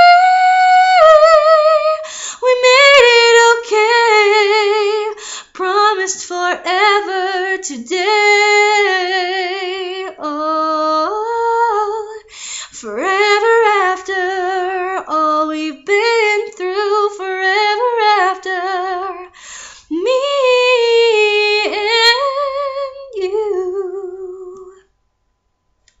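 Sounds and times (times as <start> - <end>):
woman singing a cappella: 0.0 - 24.9
singer breathing: 2.0 - 2.4, 5.1 - 5.6, 12.3 - 12.8, 19.3 - 19.9.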